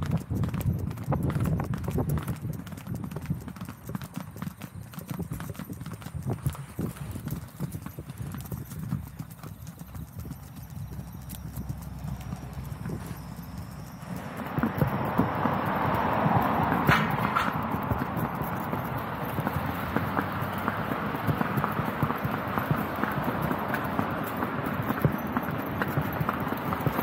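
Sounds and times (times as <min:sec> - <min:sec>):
horse hooves clip-clopping on dirt: 0:00.0 - 0:27.0
vehicle passing: 0:09.4 - 0:27.0.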